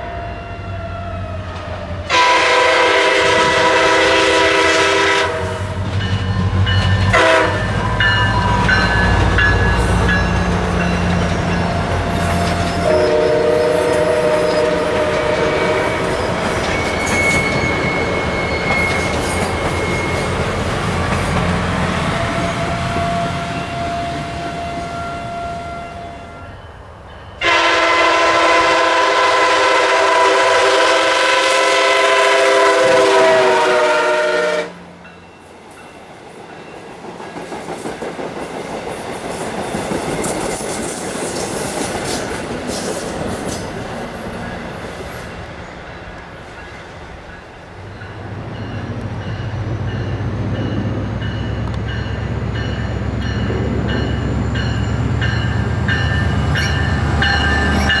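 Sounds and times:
train engine and rail noise: 0.0s - 58.0s
multi-chime train horn: 2.1s - 20.7s, 22.0s - 35.5s.

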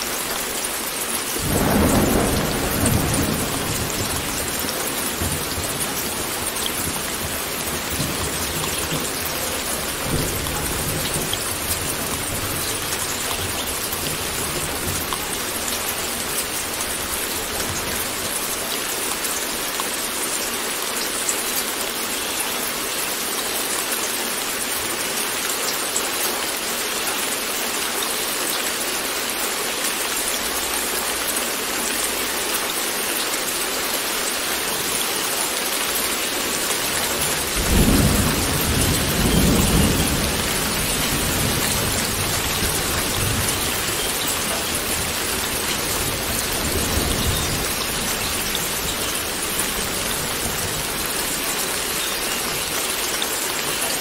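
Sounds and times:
steady rain: 0.0s - 54.0s
thunder rumbling: 1.4s - 18.6s, 36.9s - 51.5s.

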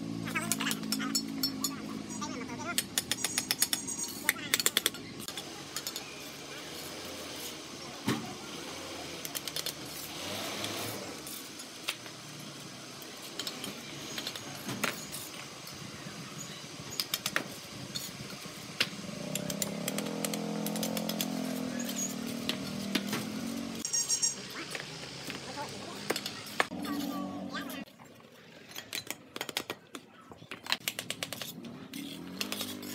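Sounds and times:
trowels tapping and scraping: 0.3s - 8.3s, 16.8s - 27.9s, 28.6s - 32.9s
small engine humming: 5.2s - 27.9s
bricks clinking and knocking: 28.6s - 32.9s.

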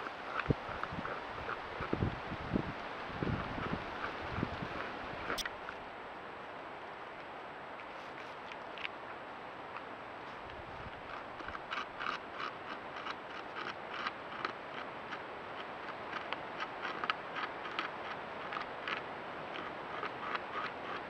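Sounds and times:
beaver gnawing wood: 0.0s - 2.1s, 3.2s - 5.4s, 9.6s - 21.0s
microphone hiss: 0.0s - 11.6s.

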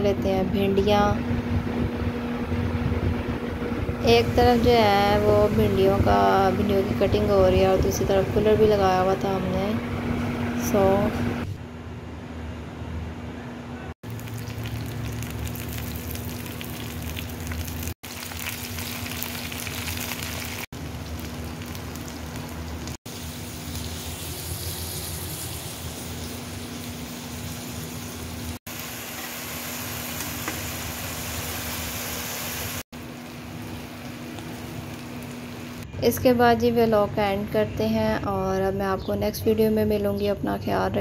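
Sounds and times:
low hum: 0.0s - 19.8s
vegetables sizzling in hot oil: 14.1s - 32.8s.

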